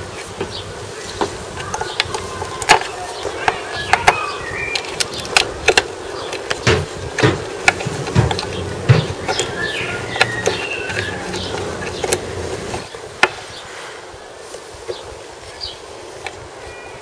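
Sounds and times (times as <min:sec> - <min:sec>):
birds chirping faintly: 0:00.0 - 0:17.0
steady low hum: 0:00.0 - 0:17.0
hands clicking and knocking valve: 0:01.2 - 0:13.4.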